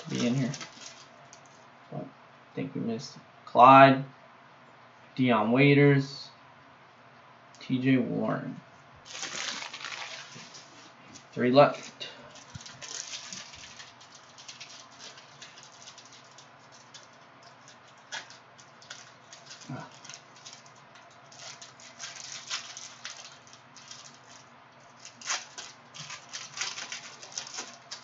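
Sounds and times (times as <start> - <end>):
plastic wrapper crinkling: 0.0 - 1.6, 9.0 - 28.0.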